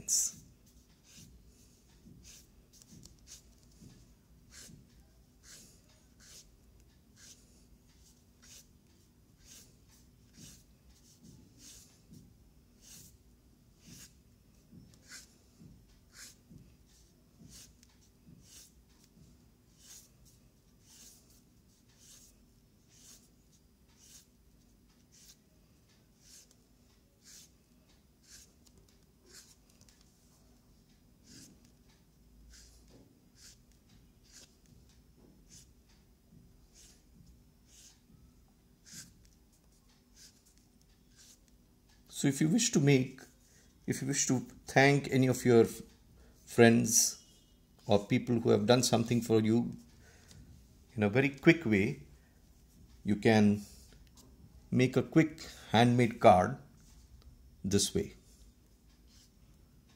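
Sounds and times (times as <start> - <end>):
brush pen scratching on paper: 0.2 - 13.2, 13.8 - 14.2, 14.8 - 24.4, 25.0 - 25.4, 26.1 - 26.6, 27.2 - 27.6, 28.2 - 30.1, 31.2 - 31.8, 32.5 - 34.7, 35.5 - 35.7, 36.6 - 37.0, 37.6 - 38.0, 38.8 - 39.3, 40.1 - 41.4.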